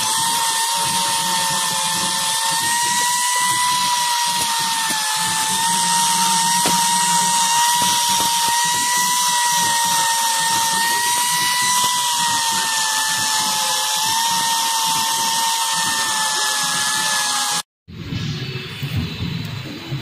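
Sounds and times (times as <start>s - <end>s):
angle grinder grinding steel: 0.0s - 17.6s.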